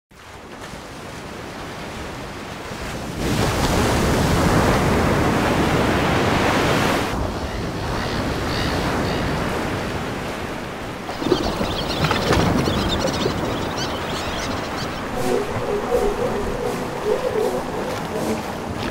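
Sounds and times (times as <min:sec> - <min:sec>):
small waves breaking on beach: 0:00.2 - 0:15.5
wind buffeting microphone: 0:10.8 - 0:18.9.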